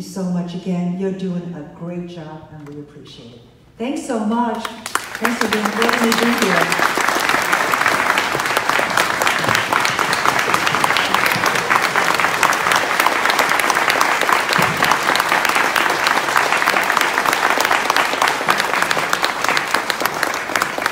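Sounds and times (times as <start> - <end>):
audience applauding: 4.8 - 20.9.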